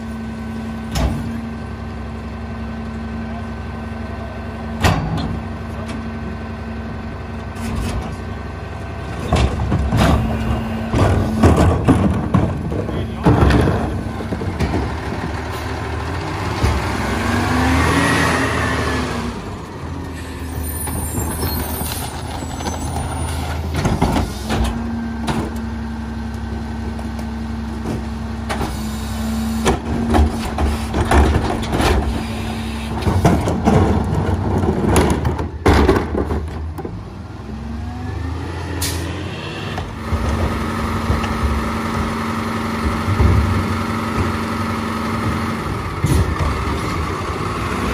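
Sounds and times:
garbage truck engine revving: 3.6s - 47.9s
knocks and bangs from truck rear: 9.2s - 15.0s, 33.0s - 36.9s.

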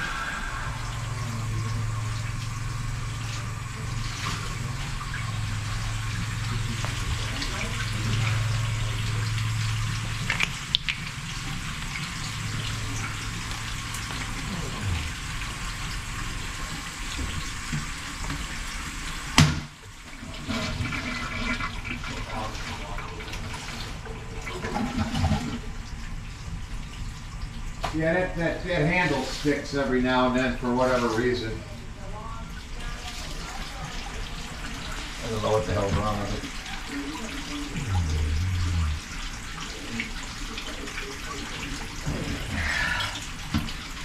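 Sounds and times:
low hum: 0.0s - 18.1s, 37.5s - 40.3s
toilet tank filling: 0.0s - 44.0s.

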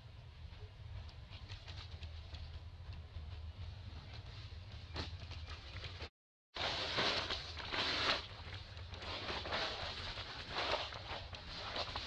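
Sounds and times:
dry leaves rustling: 6.6s - 12.0s
footsteps in leaf litter: 6.6s - 12.0s.

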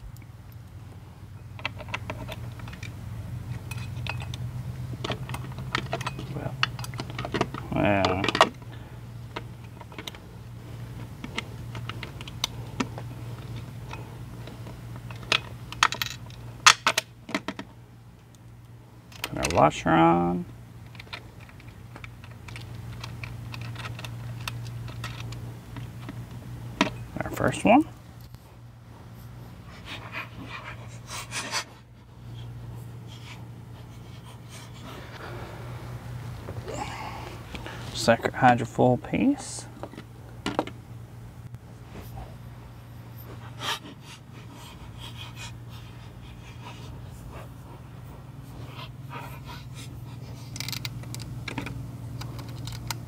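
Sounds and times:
steady low hum: 0.0s - 53.0s
bolts and nuts clicking: 1.5s - 8.7s, 20.8s - 27.5s.

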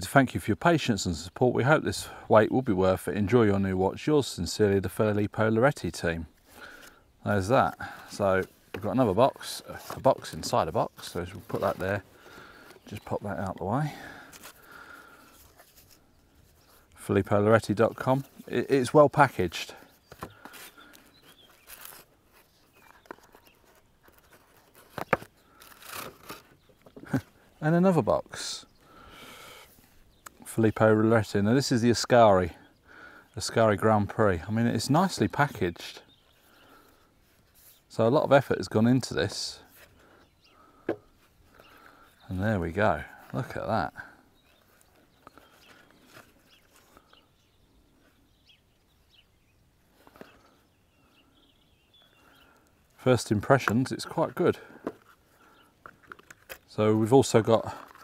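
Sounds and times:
distant bird chirps: 5.7s - 58.0s
box scraping and rustling: 8.1s - 13.2s, 19.3s - 27.2s.

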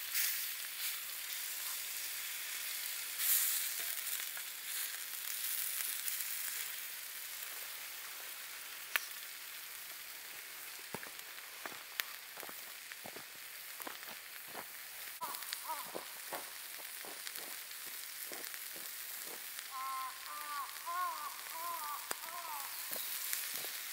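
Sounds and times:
fire pops and crackles: 0.0s - 23.9s
meat sizzling in frying pan: 0.0s - 23.9s
sharp crack: 15.2s - 23.8s.

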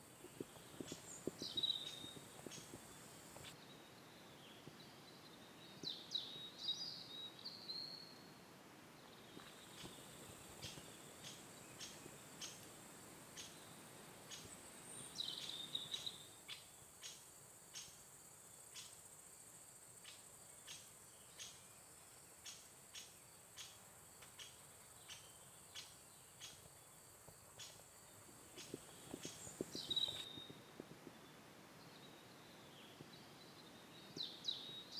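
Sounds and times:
steady high hiss: 0.0s - 34.9s
bird song warbling: 0.4s - 2.7s, 28.6s - 30.6s.

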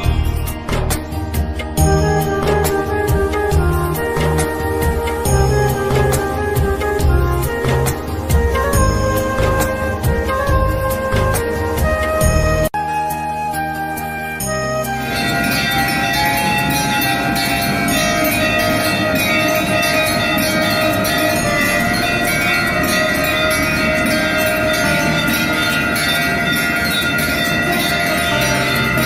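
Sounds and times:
temple bells ringing rapidly: 15.0s - 29.0s.

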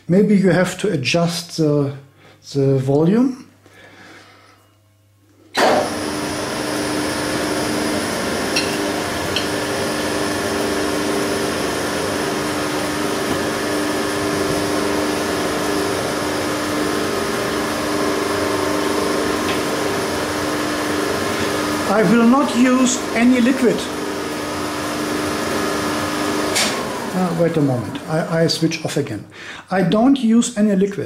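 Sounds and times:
lathe humming with whine: 5.6s - 28.8s.

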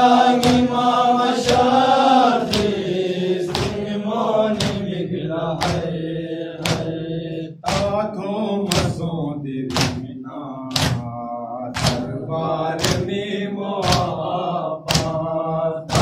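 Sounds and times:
men chanting a lament: 0.0s - 16.0s
chest-beating slaps: 0.2s - 5.0s, 5.6s - 7.0s, 7.6s - 8.0s, 8.7s - 9.1s, 9.7s - 10.1s, 10.7s - 12.2s, 12.8s - 13.2s, 13.8s - 14.3s, 14.9s - 15.3s.

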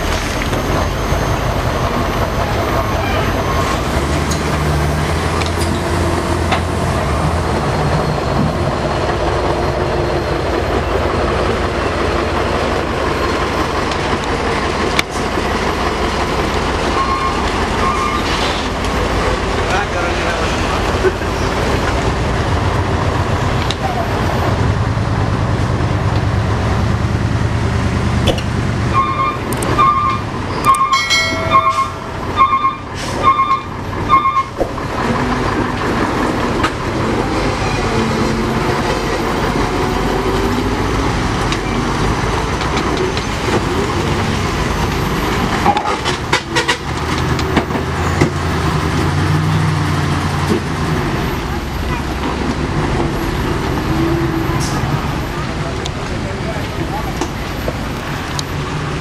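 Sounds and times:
dump truck diesel engines under load: 0.0s - 59.0s
horn short toots: 28.9s - 34.6s.

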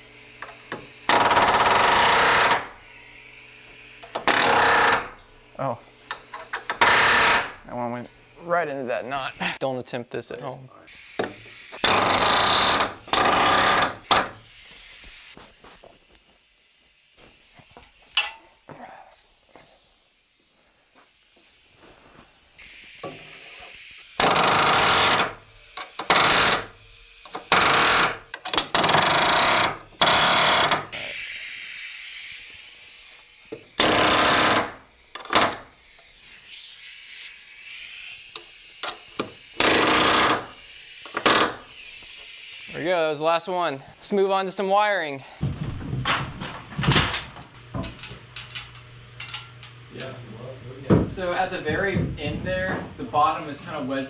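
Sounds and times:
pneumatic nailer hammering: 0.0s - 5.3s, 6.0s - 7.6s, 11.1s - 14.8s, 23.0s - 31.2s, 33.4s - 36.1s, 38.3s - 42.3s.

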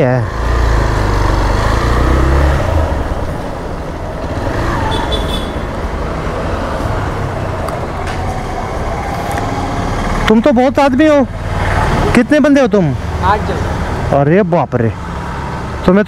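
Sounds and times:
road vehicles running: 0.0s - 16.0s.

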